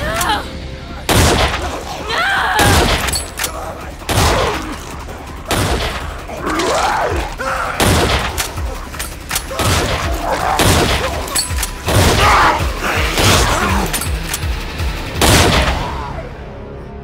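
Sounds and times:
people shouting: 0.0s - 14.0s
gunshots: 1.1s - 1.9s, 2.6s - 14.3s, 15.1s - 16.0s.

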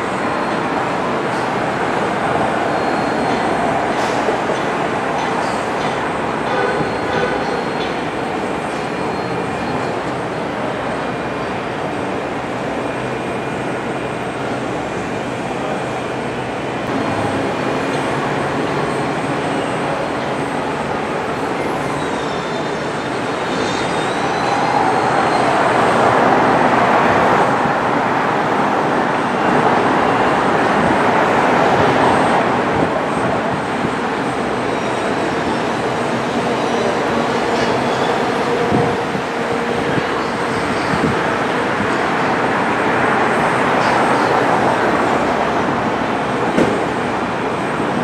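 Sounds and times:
train rumbling and clattering: 0.0s - 48.0s
faint high wheel squeals: 2.6s - 3.6s, 6.5s - 10.5s, 21.4s - 25.9s.

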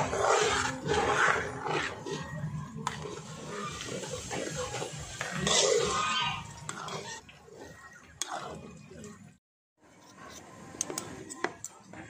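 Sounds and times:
spatula scraping metal wok: 0.0s - 9.0s.

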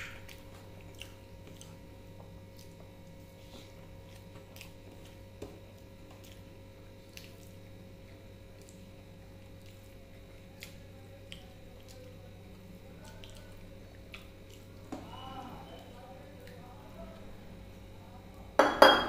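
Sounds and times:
wet squishing of food: 0.0s - 18.6s
steady low hum: 0.0s - 19.0s.

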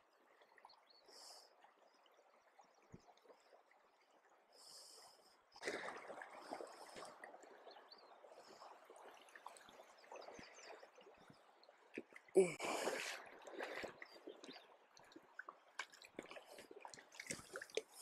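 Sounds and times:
creek water running over rocks: 5.6s - 18.0s.

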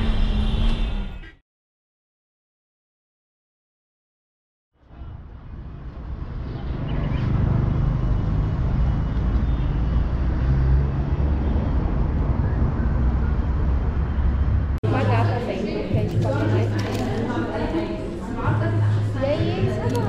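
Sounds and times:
low rumble of traffic: 4.8s - 16.6s.

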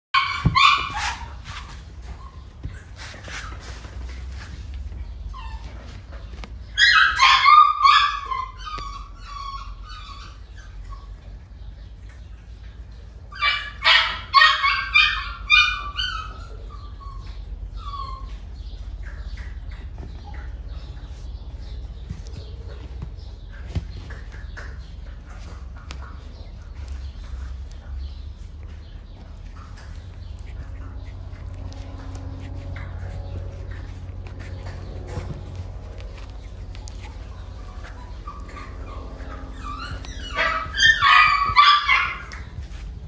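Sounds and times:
puppy yipping: 0.2s - 11.6s, 13.3s - 43.0s
steady low hum: 16.4s - 43.0s.

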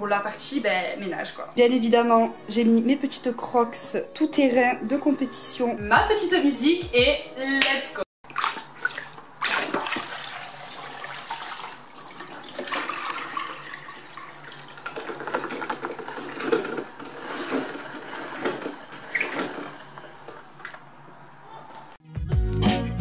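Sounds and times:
water splashing: 8.2s - 17.0s
mop sloshing in water: 8.2s - 20.8s
mop spinning in wringer: 8.5s - 22.0s.

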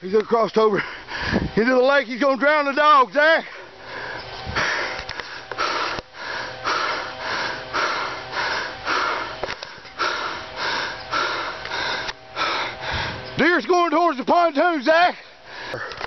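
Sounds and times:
person breathing hard: 0.7s - 1.6s, 3.4s - 13.4s, 15.2s - 16.0s.

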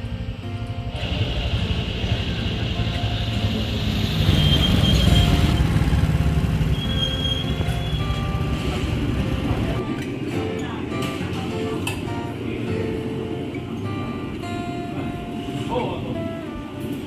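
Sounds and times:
motorcycle engine: 0.0s - 10.4s
light guitar music: 0.0s - 17.0s
road and wind noise: 0.0s - 17.0s.

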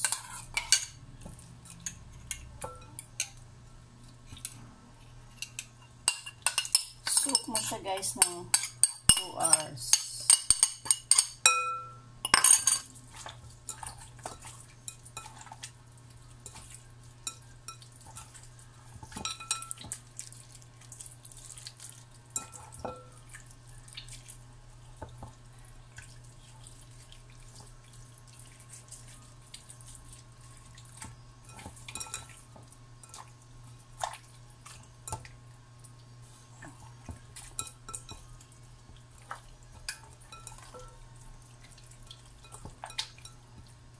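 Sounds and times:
ceramic bowl clinking on glass: 2.6s - 3.4s, 5.4s - 12.9s, 19.1s - 19.9s
hands squishing raw chicken: 19.7s - 22.3s, 23.2s - 24.5s.

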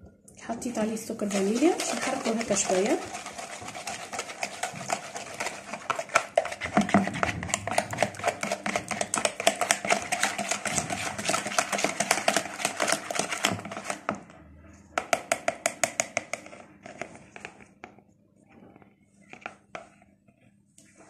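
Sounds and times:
whisk clicking against bowl: 1.2s - 14.1s, 15.0s - 16.5s.

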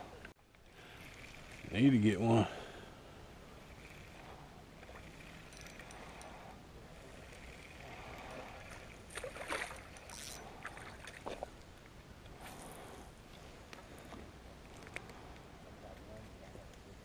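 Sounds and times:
fish thrashing and splashing: 7.4s - 11.5s.

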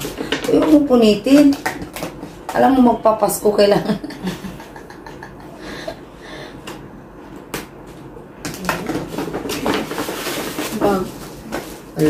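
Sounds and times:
paper packaging rustling: 8.6s - 12.0s.

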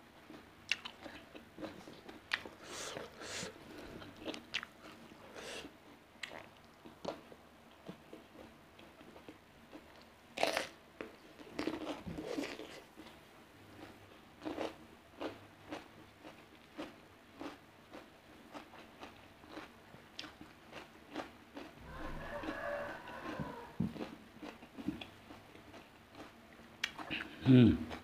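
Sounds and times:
crunchy chewing: 0.3s - 7.2s, 7.9s - 27.3s.

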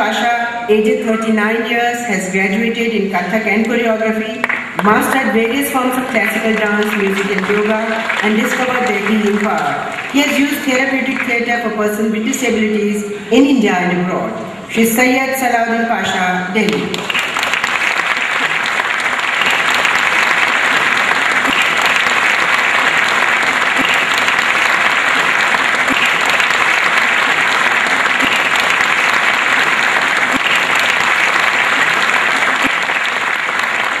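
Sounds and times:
audience applauding: 4.4s - 11.4s, 16.7s - 34.0s.

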